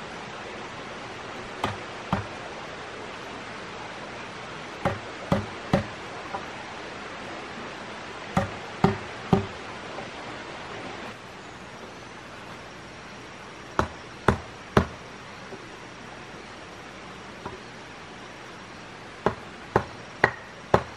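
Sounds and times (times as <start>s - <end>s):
steady background hiss: 0.0s - 20.9s
tool striking wood: 1.6s - 2.4s, 4.8s - 6.5s, 8.4s - 9.6s, 13.8s - 15.0s, 19.2s - 20.9s.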